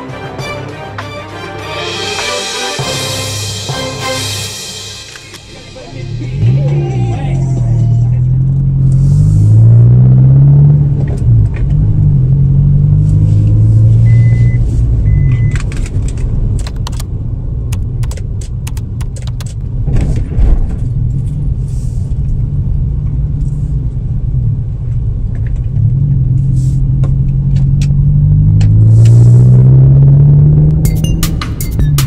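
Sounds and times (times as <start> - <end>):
engine and road rumble: 4.6 - 32.0
short high beeps: 14.0 - 15.6
clicks and rattles: 15.5 - 17.1, 17.8 - 21.0.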